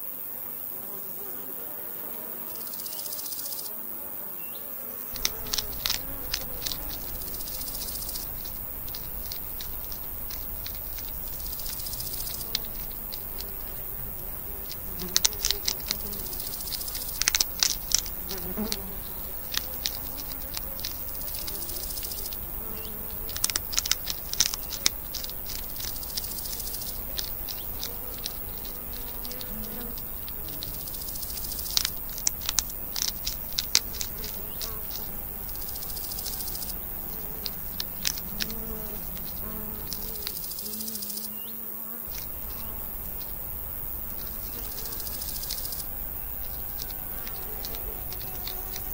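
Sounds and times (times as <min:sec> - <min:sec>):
hedgehogs crunching food: 0:05.1 - 0:40.5, 0:46.6 - 0:48.9.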